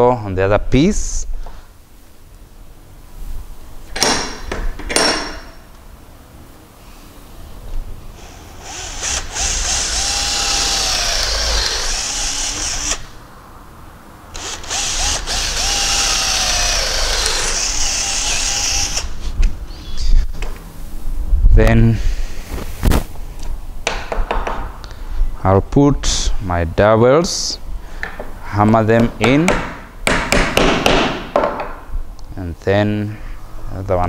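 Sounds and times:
cordless drill boring into wood: 8.2 - 13.1, 14.4 - 19.2.

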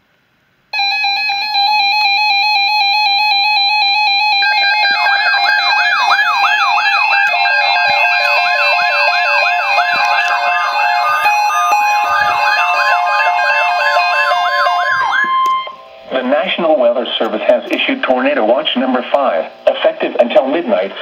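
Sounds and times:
stepped alarm beeping: 0.8 - 16.0
falling siren-like alarm sweep: 0.8 - 16.1.

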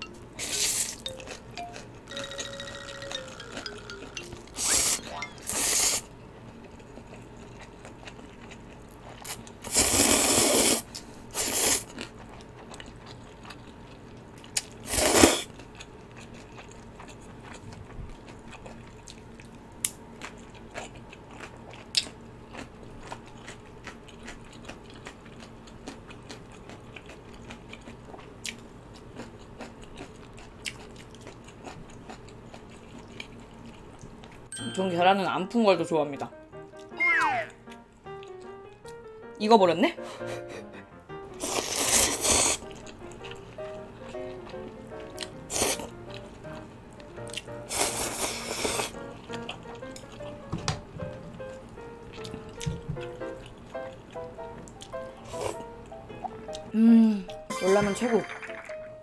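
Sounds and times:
chewing: 0.4 - 10.7, 11.4 - 34.5, 41.3 - 50.4, 51.8 - 56.7
noodle slurping: 4.6 - 6.1, 9.2 - 11.9, 14.8 - 15.5, 41.4 - 42.8.

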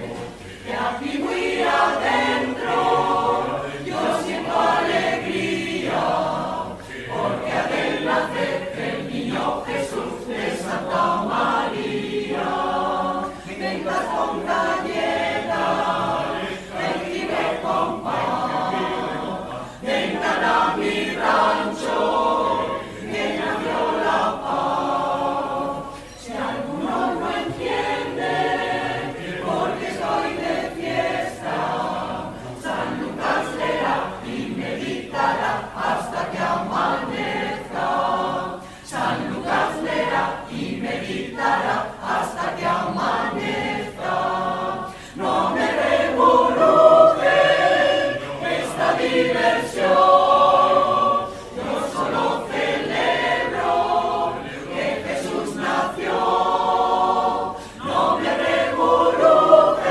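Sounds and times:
mixed choir singing a carol: 0.0 - 59.9.

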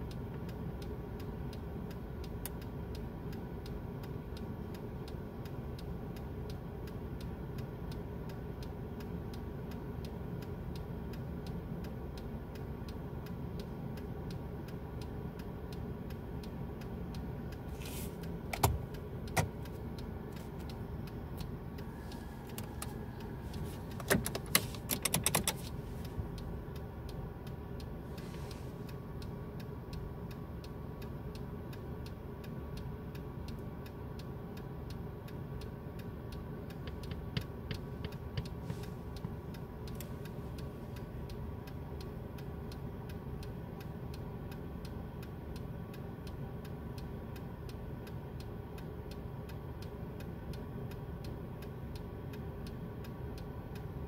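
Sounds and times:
car engine idling: 0.2 - 54.0
sharp clicks: 17.1 - 27.9.

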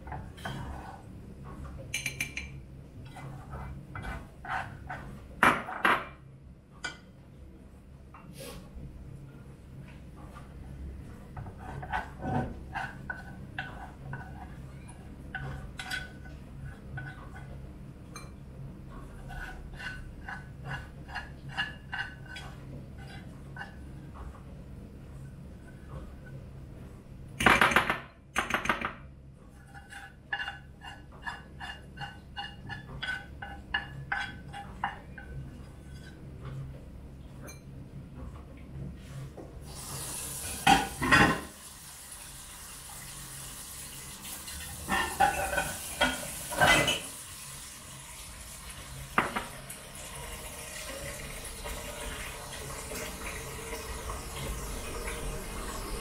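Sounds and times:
dishes clanking in sink: 1.4 - 2.6, 40.5 - 41.6, 44.8 - 47.2, 49.1 - 49.7
wooden spatula scraping metal pot: 3.0 - 5.3, 11.4 - 14.7, 19.0 - 23.9, 29.5 - 36.3
tap water running: 39.6 - 56.0.

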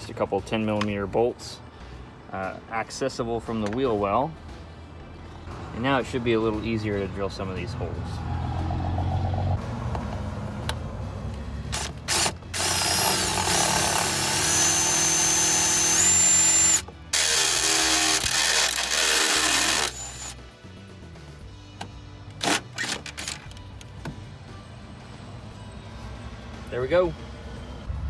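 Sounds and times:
cordless drill whining: 11.7 - 20.4.

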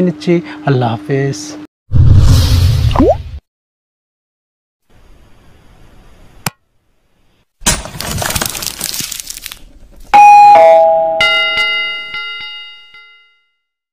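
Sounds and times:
crash-like whoosh: 1.9 - 3.4
bell chime ringing: 10.2 - 13.6
two-note ding-dong: 10.2 - 13.6.

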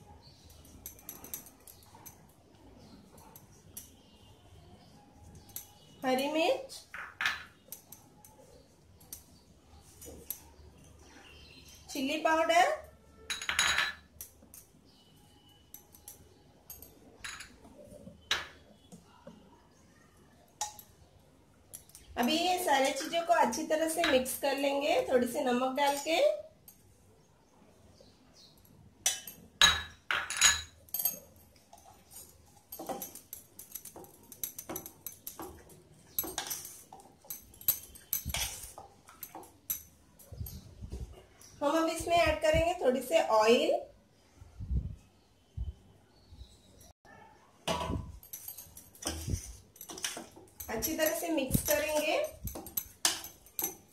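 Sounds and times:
spoon and glass bowls clinking: 0.3 - 2.3, 13.1 - 19.0, 20.5 - 26.9, 29.0 - 41.5, 47.7 - 53.9
clinks against steel pot: 47.7 - 53.9.

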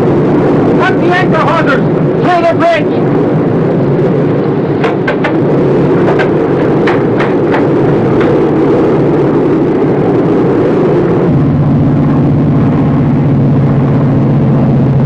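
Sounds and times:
heavy engines droning: 0.0 - 15.0
sharp knocks: 4.8 - 8.4.

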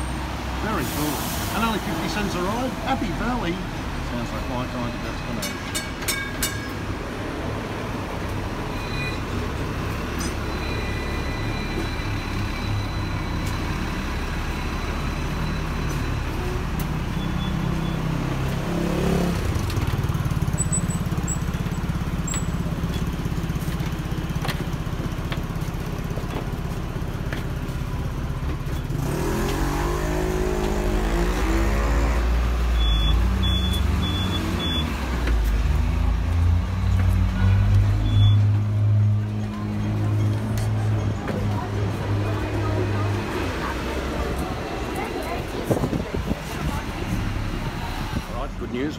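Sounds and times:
rumble of traffic engines: 0.0 - 48.9
vehicle pulling away: 11.8 - 48.7.

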